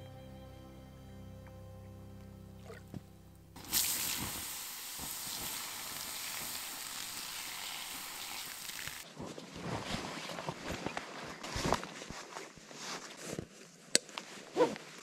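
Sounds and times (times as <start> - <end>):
embers hissing and sizzling: 3.6 - 9.0
rustling and handling noises: 9.0 - 15.0.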